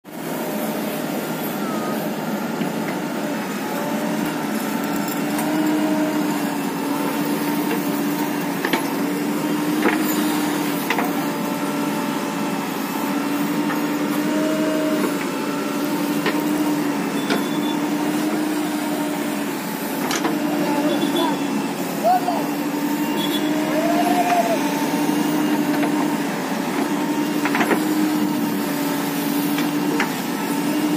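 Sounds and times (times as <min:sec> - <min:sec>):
diesel engine running under load: 0:00.1 - 0:30.9.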